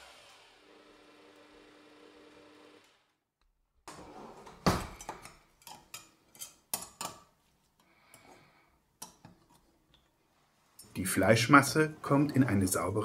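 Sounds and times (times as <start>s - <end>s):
meat grinder motor hum: 0.0s - 3.1s.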